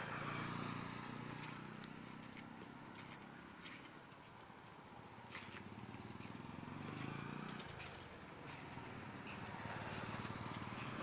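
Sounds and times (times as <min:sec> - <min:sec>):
street traffic noise: 0:00.0 - 0:11.0.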